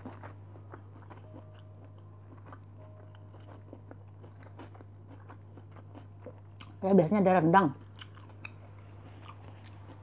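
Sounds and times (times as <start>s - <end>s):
chewing food: 0.0s - 10.0s
steady low hum: 0.0s - 10.0s.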